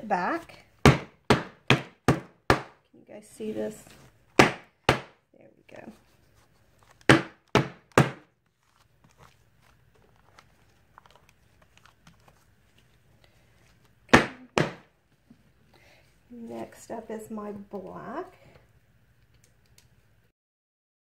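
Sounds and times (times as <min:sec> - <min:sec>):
faint handling noise: 0:05.7 - 0:07.1, 0:08.5 - 0:14.0.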